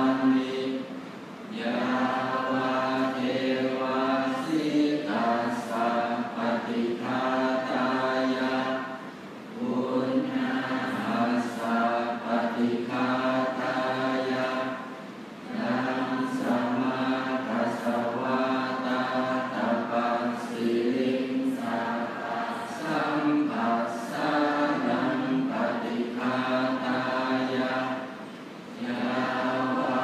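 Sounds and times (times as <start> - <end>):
monks chanting in unison: 0.0 - 30.0.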